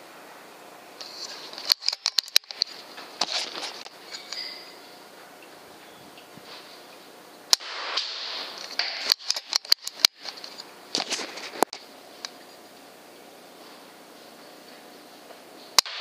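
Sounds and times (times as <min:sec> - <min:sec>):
sharp clicks and knocks: 0:01.0 - 0:04.7, 0:07.5 - 0:12.5
air rifle firing crack: 0:07.5 - 0:10.2, 0:15.8 - 0:16.0.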